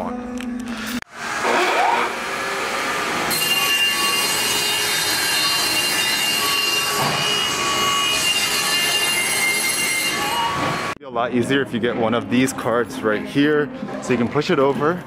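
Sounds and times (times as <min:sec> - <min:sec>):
panel saw motor whine: 0:01.2 - 0:11.0.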